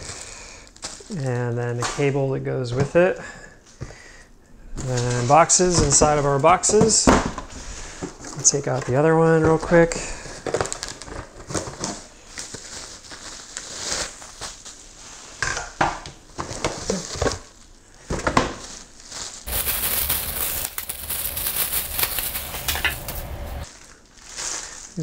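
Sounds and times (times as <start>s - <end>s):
plastic bag crinkling: 0.0s - 1.3s, 10.1s - 15.0s, 18.6s - 25.0s
packaging rustles and knocks: 10.3s - 14.8s, 16.2s - 23.7s.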